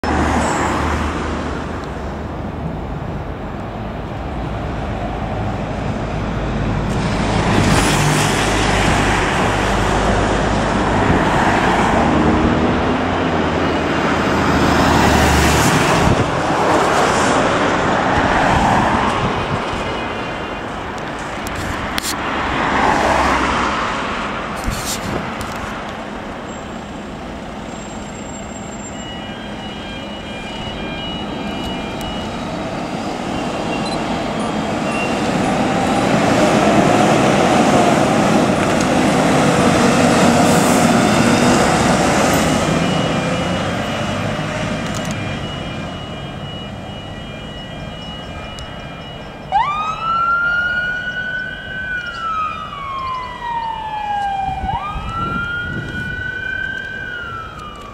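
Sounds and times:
fire engine driving past: 0:00.0 - 0:57.9
wailing siren: 0:07.9 - 0:20.9, 0:28.1 - 0:57.9.

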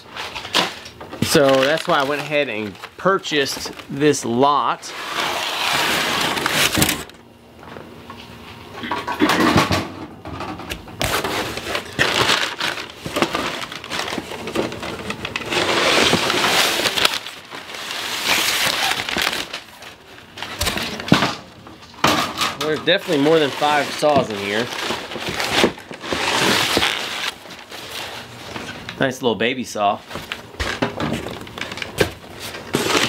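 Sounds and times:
packing paper rustling: 0:00.0 - 0:07.1, 0:11.0 - 0:21.5, 0:22.6 - 0:29.0, 0:29.9 - 0:33.0
cardboard flaps handled: 0:23.2 - 0:28.7.

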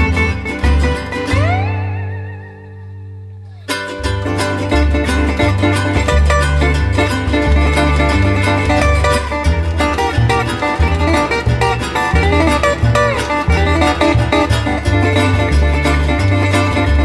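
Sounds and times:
fingerstyle resonator guitar: 0:00.0 - 0:17.0.

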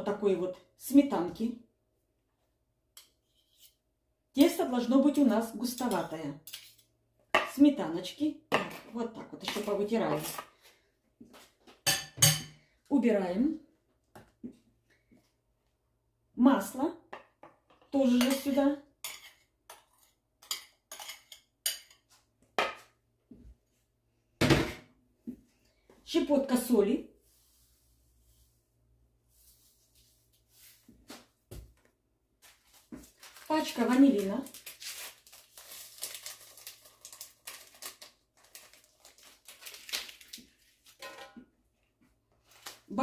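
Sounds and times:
metal spoon scraping a bowl: 0:03.0 - 0:03.8, 0:06.4 - 0:06.9, 0:18.2 - 0:22.0
paper packet crinkling: 0:32.4 - 0:41.0, 0:42.4 - 0:43.0.

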